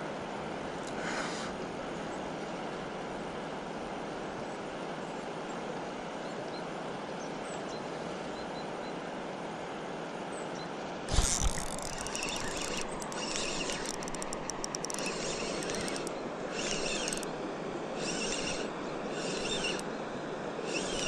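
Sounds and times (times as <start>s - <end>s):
scattered clicks: 11.1s - 17.3s, 18.0s - 19.8s, 20.7s - 21.0s
spinning reel cranking: 11.1s - 19.8s, 20.6s - 21.0s.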